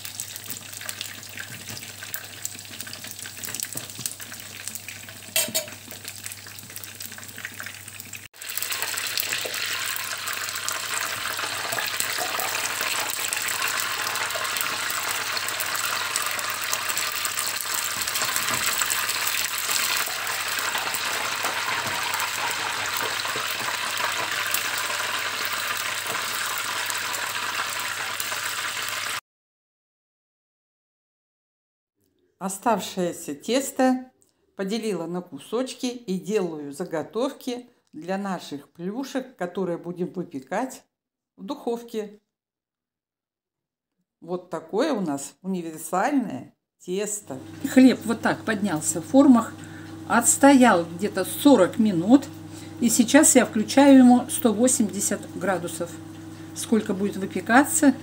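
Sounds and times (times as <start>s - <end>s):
oil sizzling in a skillet: 0.0s - 29.2s, 47.4s - 58.0s.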